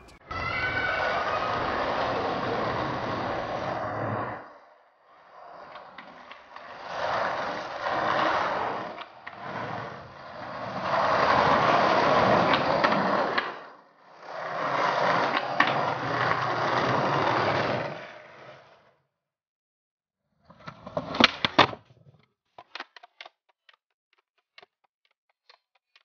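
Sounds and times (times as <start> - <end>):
skateboard wheels rolling on stone: 0.0 - 19.0, 20.5 - 23.1.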